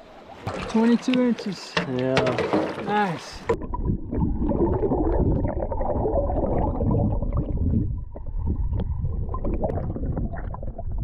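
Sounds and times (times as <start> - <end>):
muffled underwater water churning: 0.0 - 11.0
bubbles clicking: 3.5 - 11.0.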